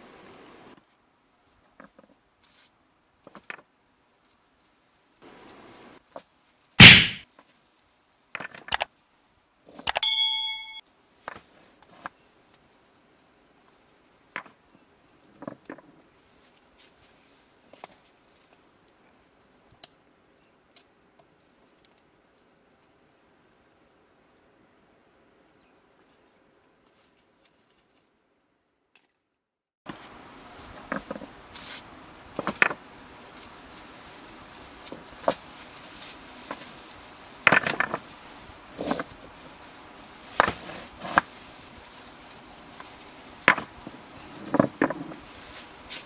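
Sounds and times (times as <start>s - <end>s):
loud thump: 6.8s - 7.2s
short bell ding: 10.0s - 10.8s.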